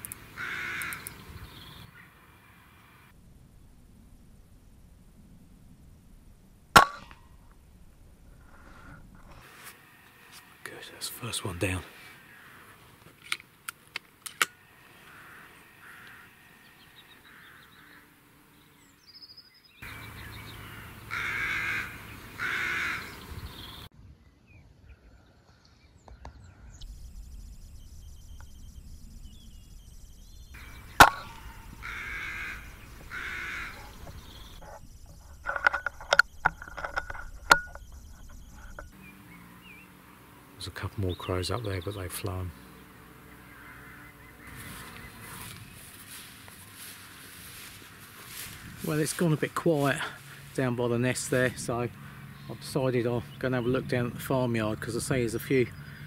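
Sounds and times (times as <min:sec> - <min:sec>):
crows cawing: 0:00.0 - 0:01.2, 0:11.6 - 0:13.0, 0:14.4 - 0:18.3, 0:19.8 - 0:23.2, 0:30.6 - 0:34.8, 0:42.8 - 0:48.9, 0:51.9 - 0:52.5
air rifle shot: 0:31.0 - 0:31.8.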